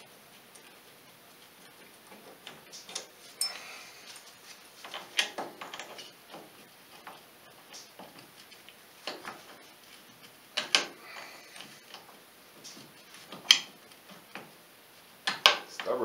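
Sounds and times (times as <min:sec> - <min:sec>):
metallic clicks and knocks: 0:04.8 - 0:08.2, 0:10.2 - 0:11.0, 0:15.2 - 0:16.0.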